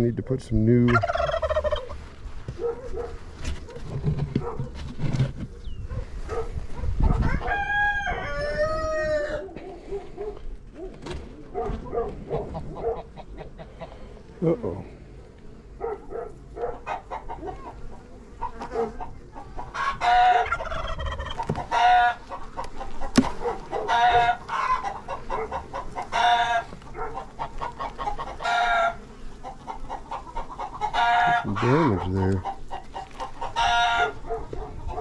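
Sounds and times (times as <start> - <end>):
chicken calling loudly: 0.9 - 2.1, 7.0 - 9.8, 19.6 - 29.0, 29.6 - 35.0.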